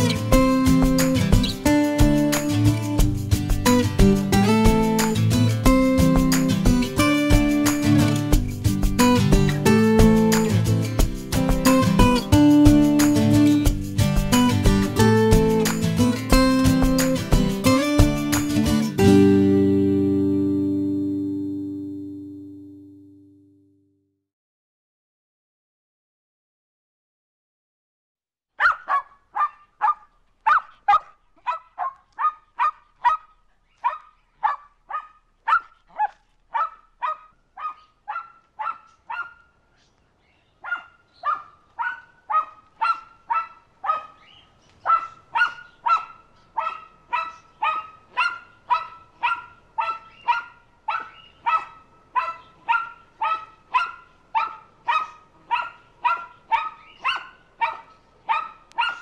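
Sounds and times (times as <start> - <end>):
dog barking: 28.6 - 39.6, 40.6 - 59.0.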